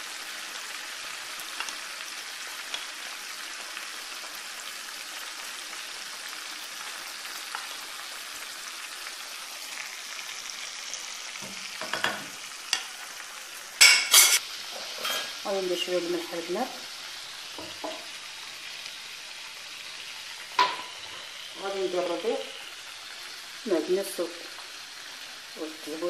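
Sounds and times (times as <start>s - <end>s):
meat sizzling in oil: 0.0s - 26.0s
cookware clattering: 11.8s - 12.9s, 13.8s - 14.4s, 20.6s - 21.0s.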